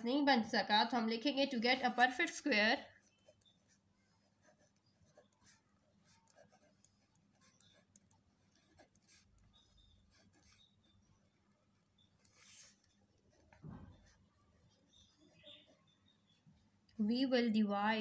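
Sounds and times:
pen scratching on paper: 0:01.6 - 0:16.6.

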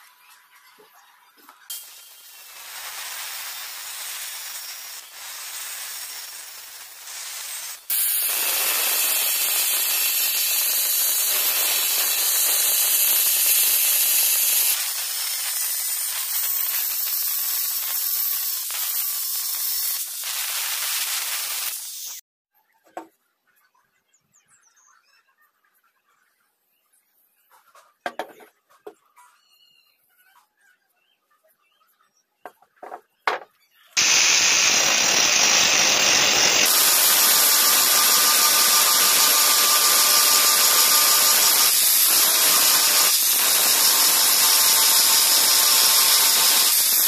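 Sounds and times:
angle grinder cutting steel: 0:01.7 - 0:22.2, 0:34.0 - 0:47.0.

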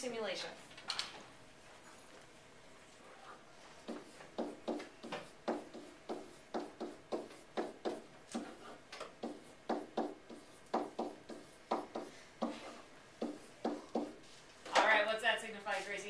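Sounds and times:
pen scraping on whiteboard: 0:03.8 - 0:14.3.

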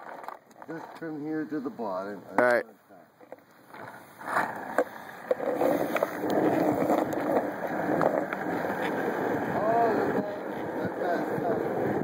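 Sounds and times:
clicks from pavement: 0:00.0 - 0:01.1, 0:03.2 - 0:09.0
skateboard wheels rolling on asphalt: 0:00.0 - 0:02.6, 0:03.2 - 0:12.0.

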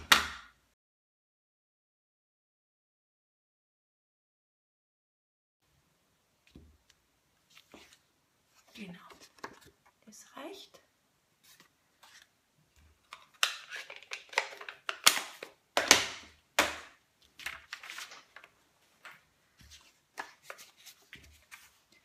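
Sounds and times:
paper rustling and sliding: 0:11.4 - 0:12.3, 0:17.4 - 0:22.0.

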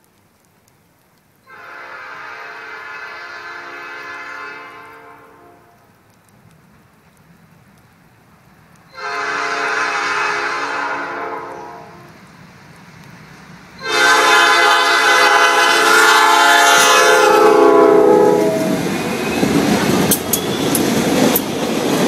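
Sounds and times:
locomotive air horn blast: 0:01.5 - 0:05.8, 0:08.9 - 0:12.1, 0:13.8 - 0:19.5
freight train rumbling by: 0:01.5 - 0:22.0
sharp clicks: 0:05.8 - 0:08.0, 0:19.7 - 0:21.7.

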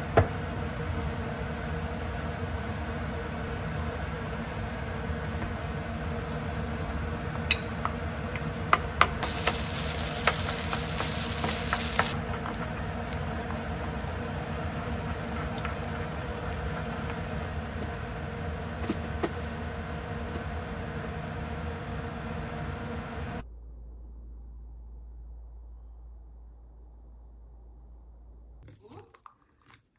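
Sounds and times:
steady background hum: 0:00.0 - 0:29.3
food sizzling in a pan: 0:09.2 - 0:12.2.

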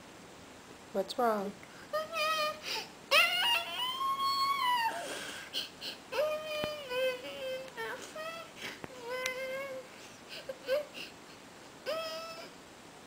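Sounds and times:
toddler crying and whining: 0:01.9 - 0:11.2, 0:11.8 - 0:12.6.

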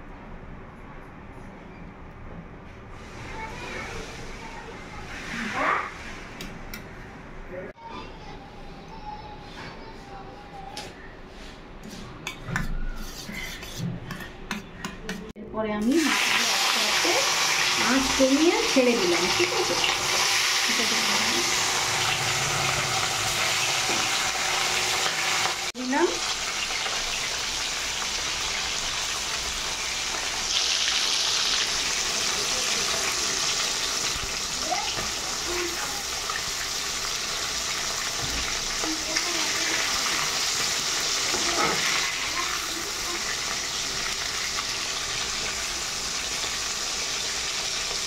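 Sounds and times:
fish deep-frying in oil: 0:15.8 - 0:48.0.

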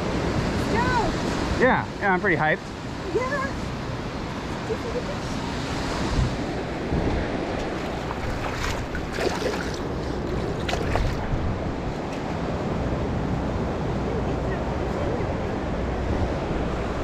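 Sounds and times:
small waves washing over sand: 0:00.0 - 0:17.0
wind rumbling on microphone: 0:02.8 - 0:17.0
hand splashing in water: 0:08.1 - 0:09.9.

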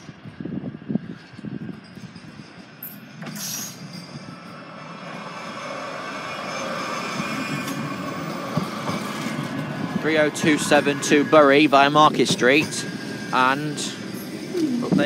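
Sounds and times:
tram wheels running on rails: 0:00.0 - 0:15.0
tram whine: 0:00.0 - 0:15.0.

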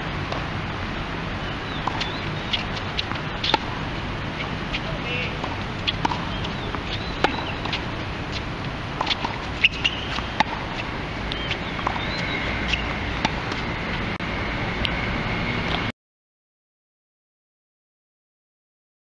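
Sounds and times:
steady low background noise: 0:00.0 - 0:15.9
tennis ball hits: 0:01.4 - 0:14.1
balls bouncing on hard court: 0:01.6 - 0:14.1.

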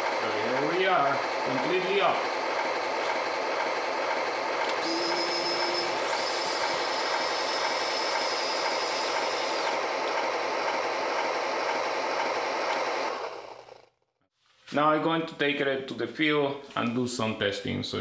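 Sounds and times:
simulated dozer engine: 0:00.0 - 0:14.0
track clatter: 0:01.2 - 0:04.9, 0:06.0 - 0:13.7.

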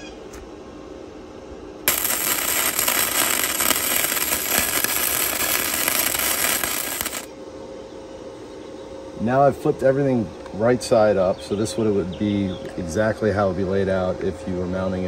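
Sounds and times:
welder arc crackling: 0:01.9 - 0:07.3.

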